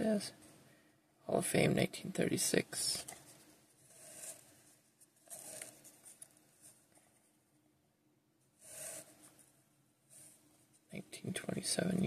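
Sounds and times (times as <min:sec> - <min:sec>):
cardboard cards sliding: 0:03.8 - 0:06.8, 0:08.6 - 0:09.4.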